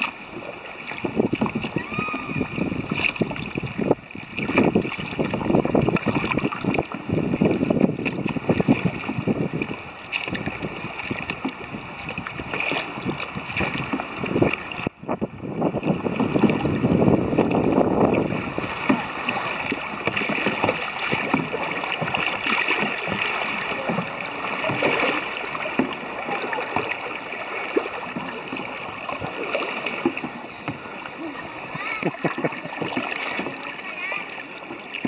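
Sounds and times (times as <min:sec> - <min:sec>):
paddles splashing and dripping: 0:00.0 - 0:35.0
wind noise on microphone: 0:00.9 - 0:25.9.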